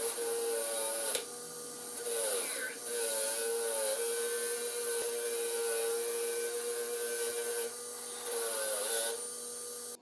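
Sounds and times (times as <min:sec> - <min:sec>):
angle grinder motor whine: 0:00.0 - 0:10.0.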